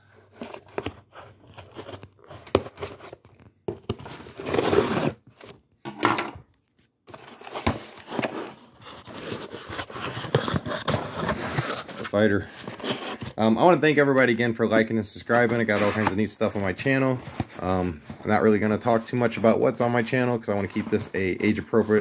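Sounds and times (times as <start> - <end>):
cardboard tearing and scraping: 3.8 - 5.6, 7.1 - 13.4.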